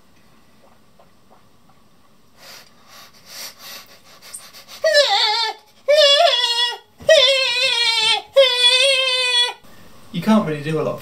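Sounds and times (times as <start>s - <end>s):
man imitating crying baby: 4.8s - 9.6s.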